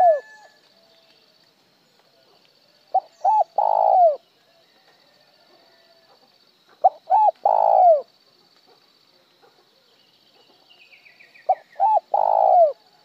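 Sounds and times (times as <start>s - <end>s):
dove cooing: 0.0s - 0.4s, 2.9s - 4.2s, 6.8s - 8.1s, 11.5s - 12.9s.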